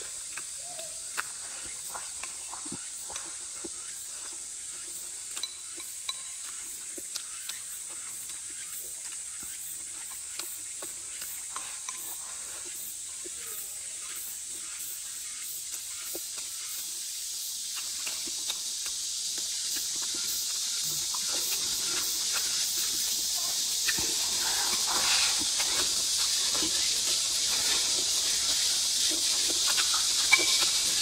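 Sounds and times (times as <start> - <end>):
steady high hiss: 0.0 - 31.0
soft chewing: 17.8 - 31.0.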